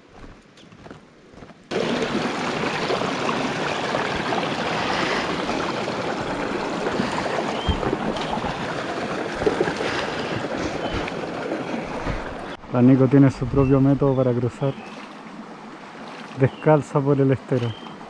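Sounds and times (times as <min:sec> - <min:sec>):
creek water rushing over rocks: 0:01.7 - 0:12.6, 0:14.4 - 0:18.0.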